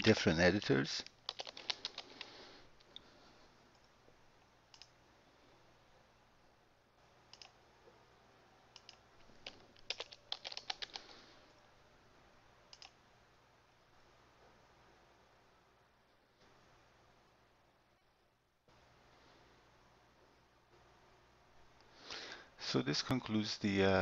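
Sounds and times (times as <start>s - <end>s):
computer keyboard keystrokes: 0.5s - 2.3s, 4.7s - 4.9s, 7.3s - 7.6s, 8.8s - 11.1s, 12.7s - 13.0s
mouse clicks: 4.7s - 4.9s, 7.3s - 7.6s, 8.8s - 11.1s, 12.7s - 13.0s.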